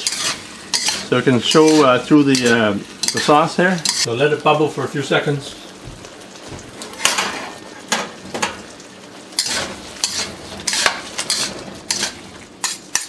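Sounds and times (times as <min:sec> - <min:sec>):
utensil scraping and clanking on wok: 0:00.0 - 0:04.1, 0:06.9 - 0:08.7, 0:09.3 - 0:13.0
steady sizzling hiss: 0:00.0 - 0:13.0.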